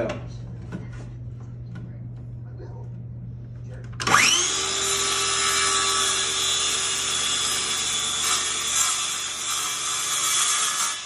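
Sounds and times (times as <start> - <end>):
circular saw cutting wood: 4.0 - 11.0.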